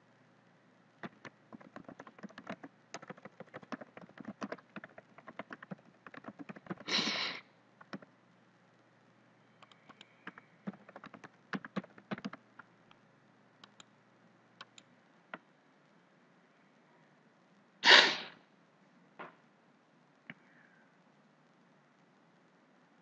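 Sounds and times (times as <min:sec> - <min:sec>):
keyboard keys clicking: 0:01.0 - 0:06.9, 0:07.8 - 0:08.1, 0:09.6 - 0:12.7, 0:13.6 - 0:13.9, 0:14.6 - 0:14.8.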